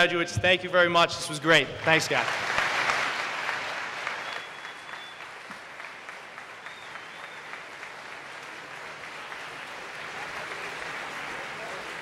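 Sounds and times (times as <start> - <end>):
audience applauding: 1.8 - 12.0.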